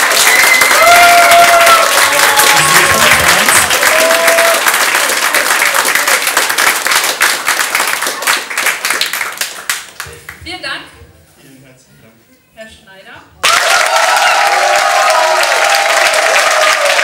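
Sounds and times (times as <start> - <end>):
cheering whoops: 0.0 - 5.0, 13.4 - 17.0
crowd applauding: 0.0 - 10.0, 13.4 - 17.0.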